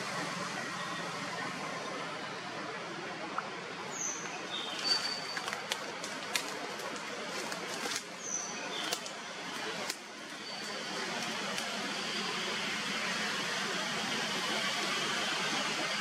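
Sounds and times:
steady forest hiss: 0.0s - 16.0s.

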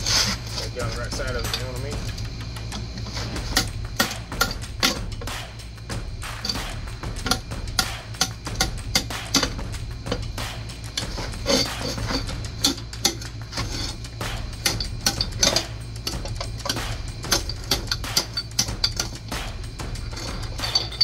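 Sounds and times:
steady low hum: 0.0s - 21.0s
metallic clicks of hand tools: 1.4s - 5.4s, 6.3s - 21.0s.

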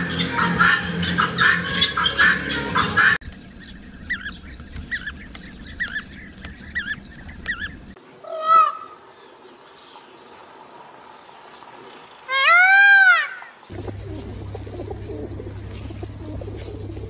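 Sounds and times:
guinea fowl cackling: 0.1s - 3.2s, 4.1s - 9.0s
peacock call: 12.3s - 17.0s.

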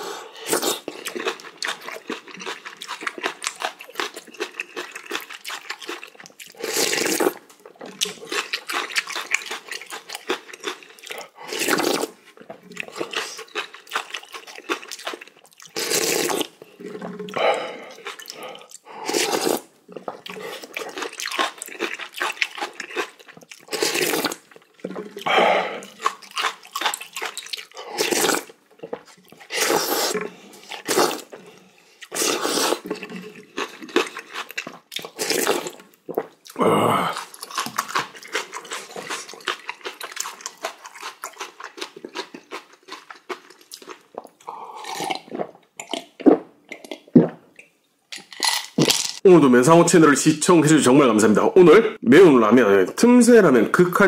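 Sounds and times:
person slurping broth: 0.0s - 1.5s, 6.4s - 7.4s, 10.8s - 13.6s, 15.7s - 21.2s, 23.7s - 26.5s, 27.2s - 34.4s, 35.0s - 39.6s, 44.2s - 47.4s.

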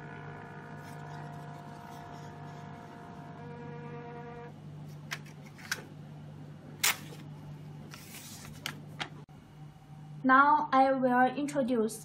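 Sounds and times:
machine low hum: 0.0s - 10.7s
paper clicks and snaps: 6.8s - 7.3s
paper rustle: 7.9s - 9.1s.

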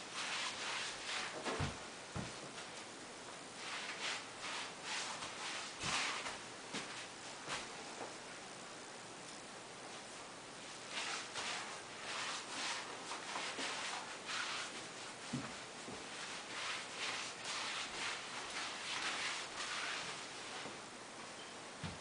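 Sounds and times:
faint thuds: 21.8s - 22.0s.

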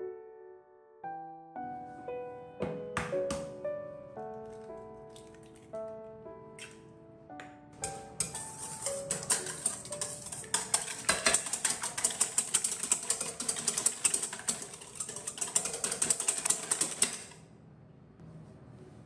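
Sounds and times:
whisk beating in metal bowl: 7.8s - 17.4s.

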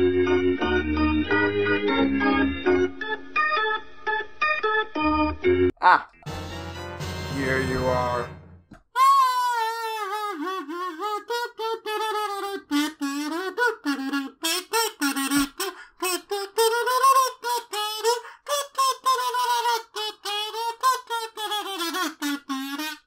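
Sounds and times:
kazoo buzzing siren imitation: 9.0s - 23.0s.

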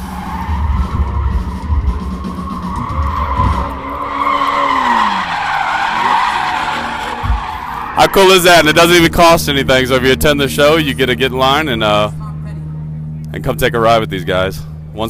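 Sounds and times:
tyres screeching: 0.0s - 10.6s
car engine running hard: 0.0s - 15.0s.

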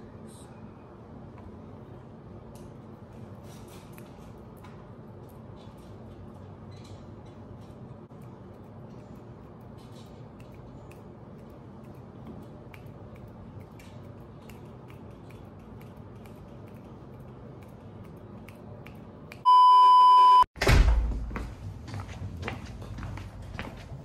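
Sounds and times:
steady electronic beep: 19.5s - 20.5s
footsteps: 20.7s - 24.0s.

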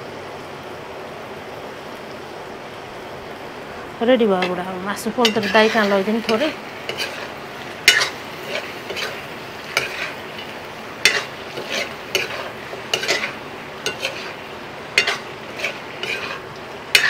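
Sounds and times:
meat sizzling: 3.2s - 17.0s
metal ladle scraping a wok: 5.2s - 17.0s.

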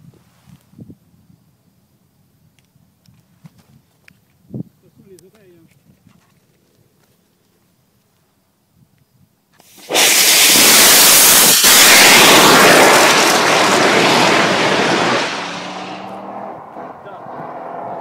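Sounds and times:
rocket motors rushing hiss: 9.6s - 16.0s.

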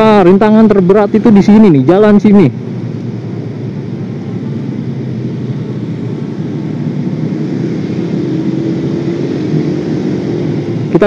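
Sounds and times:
road and wind rumble: 0.0s - 11.0s.

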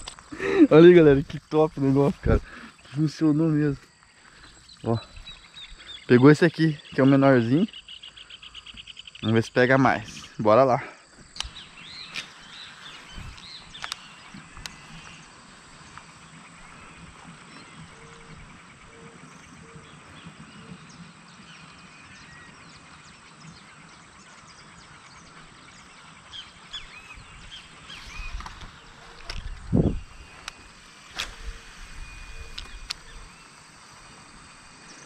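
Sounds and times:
low bird calls: 3.9s - 10.3s, 11.0s - 35.0s
high bird chirps: 26.4s - 33.5s.

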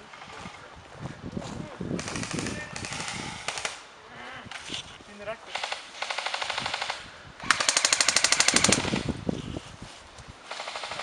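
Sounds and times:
airsoft guns firing bursts: 2.0s - 3.8s, 5.5s - 9.1s, 10.5s - 11.0s.

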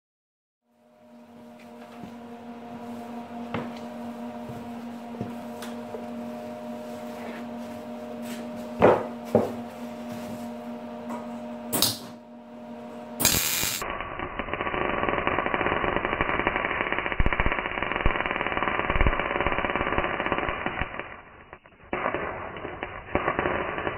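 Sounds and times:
welder humming: 0.7s - 23.9s
welding arc crackling: 11.8s - 12.0s, 13.2s - 23.9s.

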